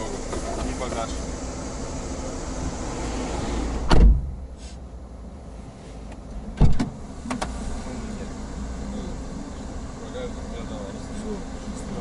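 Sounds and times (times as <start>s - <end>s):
outside hiss: 0.0s - 12.0s
car doors shutting: 0.1s - 1.2s, 3.2s - 4.8s, 6.1s - 7.8s.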